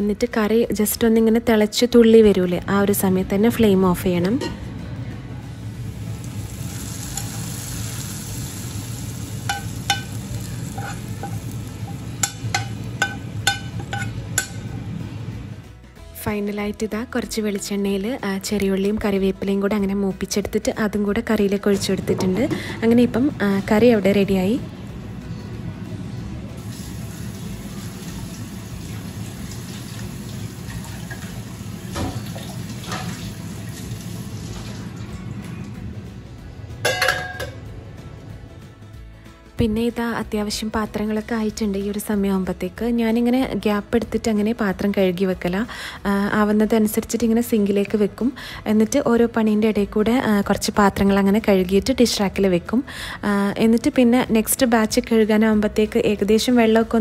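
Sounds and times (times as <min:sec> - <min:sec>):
hot oil sizzling: 0:05.6 - 0:15.0, 0:26.6 - 0:35.0
metal spoon tapping a pan: 0:09.4 - 0:14.8, 0:36.8 - 0:37.7
metal jar clanking against sink: 0:09.5 - 0:14.7, 0:36.8 - 0:37.6
tap running into metal sink: 0:31.9 - 0:33.3.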